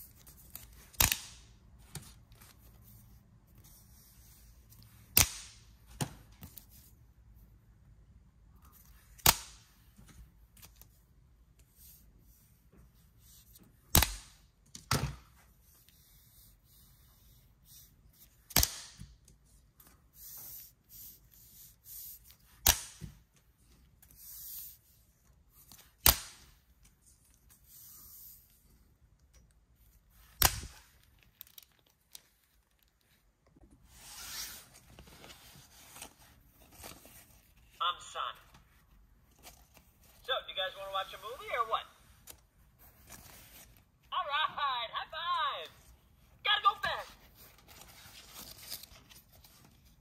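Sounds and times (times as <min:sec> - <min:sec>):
slap bracelets snapping: 0:05.1 - 0:05.6.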